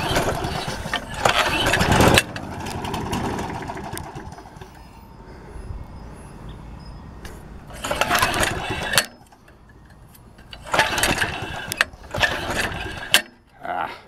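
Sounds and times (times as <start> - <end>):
recoil starter rope pulls: 0.0 - 4.8, 7.7 - 13.5
lawn mower engine cranking: 0.0 - 4.9, 7.7 - 13.5.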